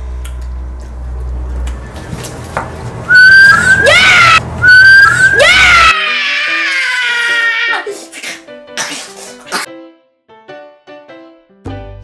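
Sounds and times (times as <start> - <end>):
child whistling high notes: 3.1 - 3.9, 4.6 - 5.4.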